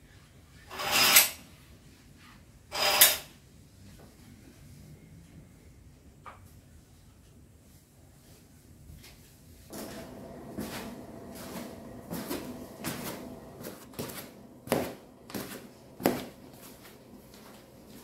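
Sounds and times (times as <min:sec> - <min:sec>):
slippered footsteps on tiled stairs: 0:09.7 - 0:18.0.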